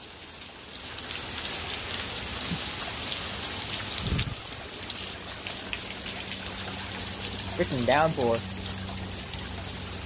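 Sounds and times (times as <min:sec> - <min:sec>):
heavy rain pouring: 0:00.0 - 0:10.0.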